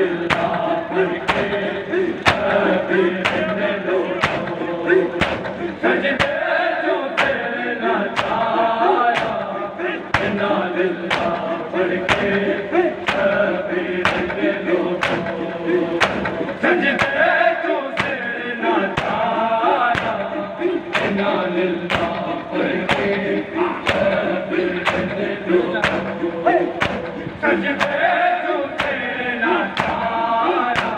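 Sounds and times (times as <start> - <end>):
men chanting together: 0.0 - 30.9
hands slapping bare chests: 9.2 - 9.4, 11.1 - 11.4, 13.1 - 13.3, 15.0 - 15.3, 20.0 - 20.2, 25.8 - 26.1, 26.8 - 27.1.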